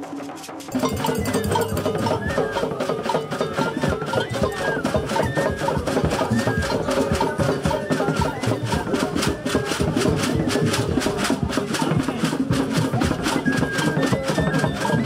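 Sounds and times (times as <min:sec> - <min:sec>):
drums and shakers beat: 0:00.0 - 0:15.0
high melodic line: 0:00.7 - 0:09.5.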